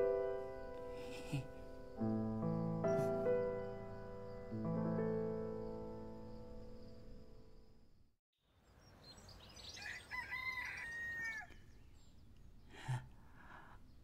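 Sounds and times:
piano music: 0.0s - 8.0s
small birds chirping: 8.4s - 14.0s
rooster crowing: 9.7s - 11.7s.

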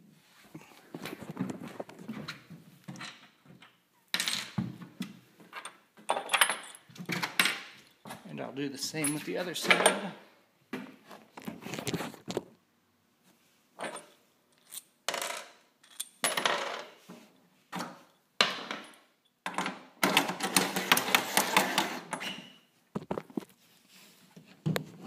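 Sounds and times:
metal bolts and washers clinking: 5.5s - 8.0s, 9.0s - 10.2s, 13.8s - 16.9s.

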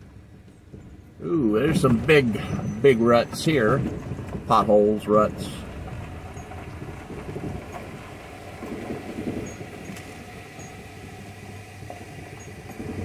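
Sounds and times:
engine hum inside cab: 0.0s - 13.0s
tyres bumping over ruts: 0.0s - 13.0s
clinks and rattles: 5.8s - 8.0s.

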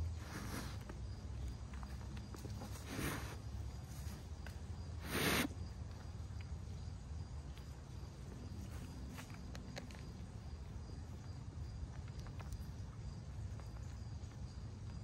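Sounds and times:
deer crunching corn: 0.0s - 6.7s
faint insect drone: 0.0s - 15.0s.

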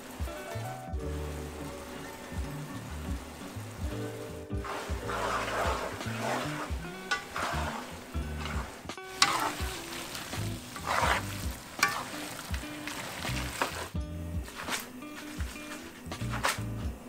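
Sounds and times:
pasta sizzling in a frying pan: 0.0s - 16.8s
background music low notes: 0.0s - 17.0s
wooden spoon stirring: 3.8s - 16.6s.

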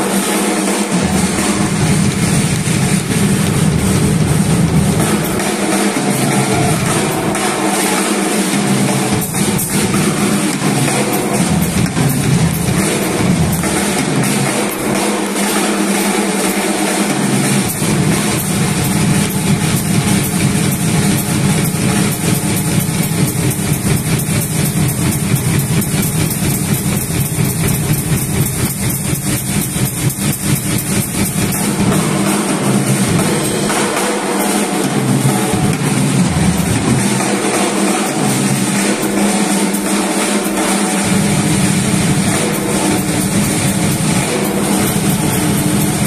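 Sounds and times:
drum kit solo: 0.0s - 46.0s.

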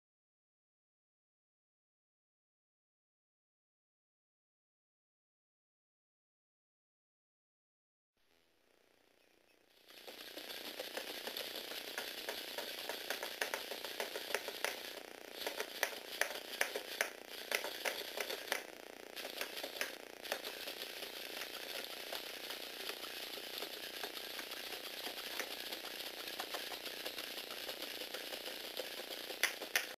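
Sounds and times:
small electric motor whirring: 8.6s - 30.0s
plastic gears rattling and clicking: 9.7s - 30.0s
robot feet tapping: 9.8s - 30.0s.

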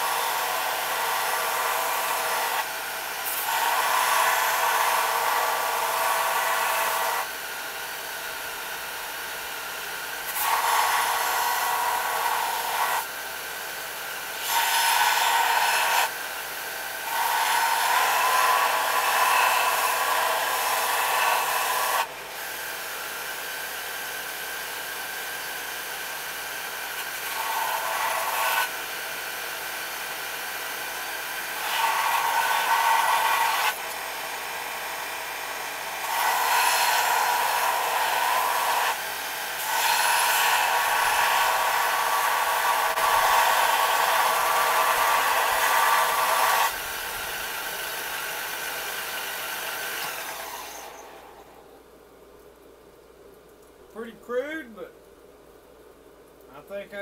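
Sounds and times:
electric grinder grinding steel: 0.0s - 7.4s, 10.1s - 13.1s, 14.3s - 22.8s, 25.0s - 51.4s.

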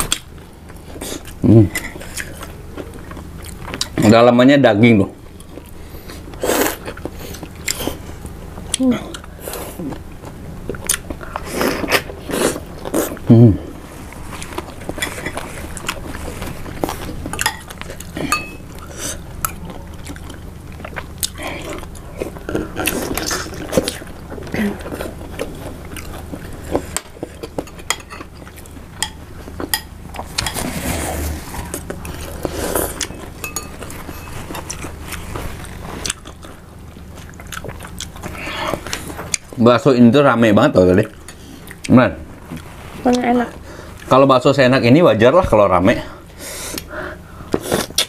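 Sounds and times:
chewing and biting: 8.7s - 13.3s, 31.6s - 39.6s
spoons clinking against bowls: 18.3s - 18.7s, 33.0s - 34.6s.

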